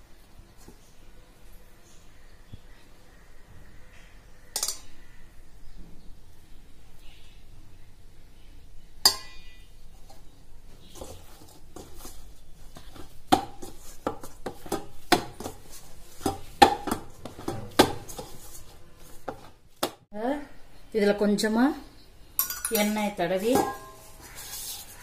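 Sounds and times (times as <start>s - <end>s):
dough knocking in steel bowl: 16.2s - 18.4s.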